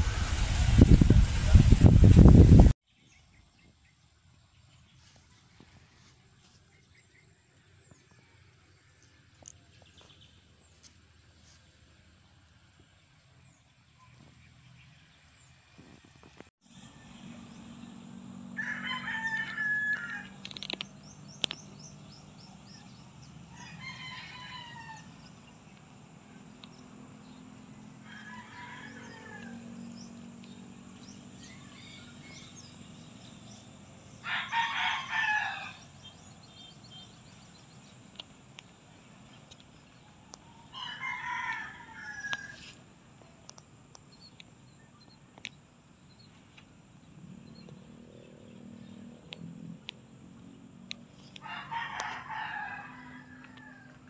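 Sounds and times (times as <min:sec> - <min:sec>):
roosters crowing: 0:17.1 - 0:20.8, 0:22.9 - 0:25.6, 0:26.2 - 0:37.4, 0:40.0 - 0:42.8, 0:51.3 - 0:54.0.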